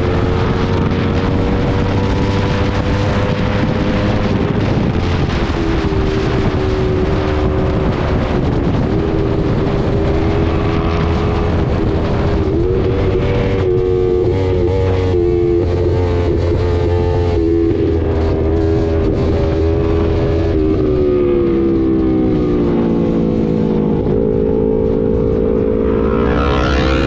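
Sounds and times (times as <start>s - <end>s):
motorcycle engine running: 0.0s - 27.0s
wind rushing over microphone: 0.0s - 27.0s.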